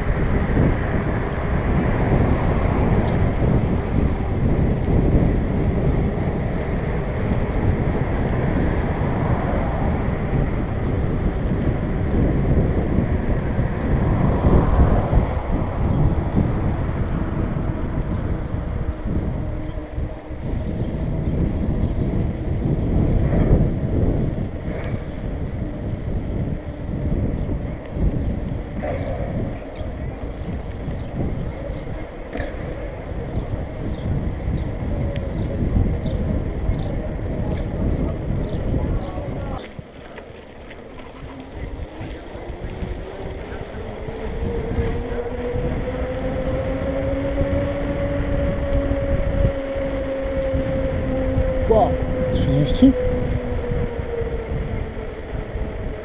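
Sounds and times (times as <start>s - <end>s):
electric bike motor whining: 0.0s - 56.0s
wind buffeting microphone: 0.0s - 56.0s.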